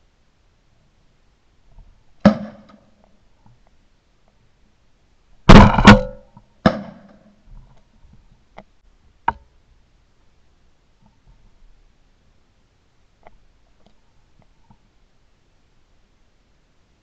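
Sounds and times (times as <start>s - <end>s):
sharp crack: 2.2s - 2.9s, 5.5s - 7.2s
shotgun shots: 5.5s - 7.0s.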